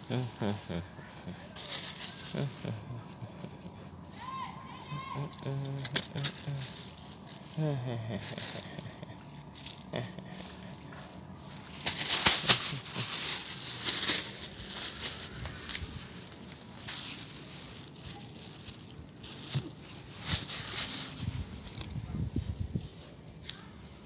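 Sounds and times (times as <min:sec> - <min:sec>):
plastic bag crinkling: 0:01.5 - 0:03.5, 0:04.9 - 0:21.9.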